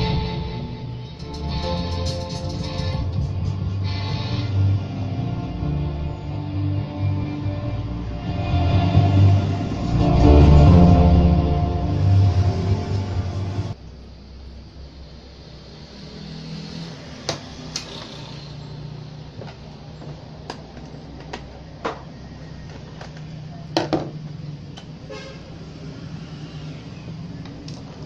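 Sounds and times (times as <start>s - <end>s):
steady low hum: 0.0s - 16.2s.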